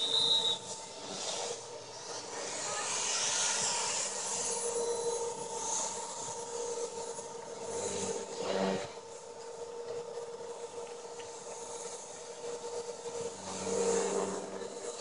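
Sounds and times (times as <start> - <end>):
rc helicopter rotor whine: 0.0 - 15.0.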